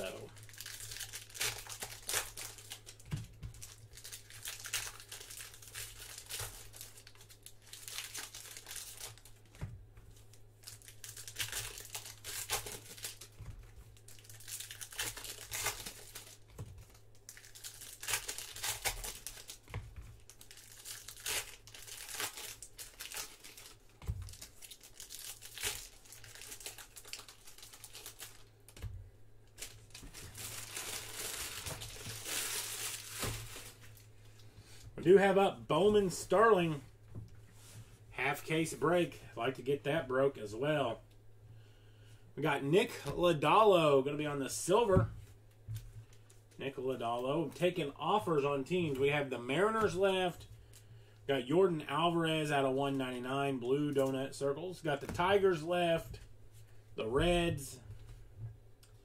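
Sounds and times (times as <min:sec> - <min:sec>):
foil wrappers tearing and crinkling: 0:00.0 - 0:09.5, 0:10.2 - 0:28.8, 0:29.6 - 0:34.1.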